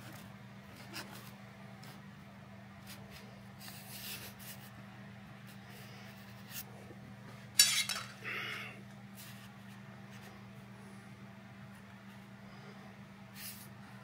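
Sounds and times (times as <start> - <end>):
steady low hum: 0.0 - 14.0
metal straight edge clattering: 7.6 - 8.2.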